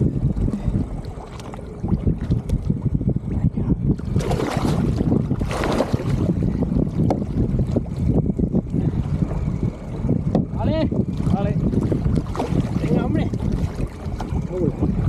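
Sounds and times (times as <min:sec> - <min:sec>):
wind rumble on microphone: 0:00.0 - 0:15.0
fish thrashing and splashing: 0:04.0 - 0:06.4, 0:11.2 - 0:14.5.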